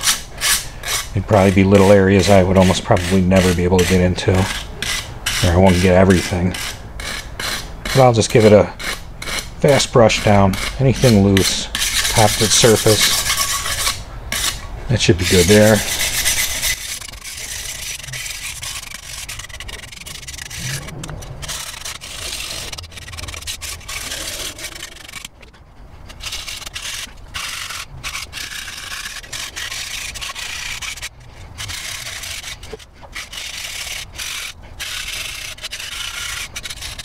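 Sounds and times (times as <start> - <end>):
wire brush scrubbing metal: 0.0 - 25.5, 26.1 - 37.0.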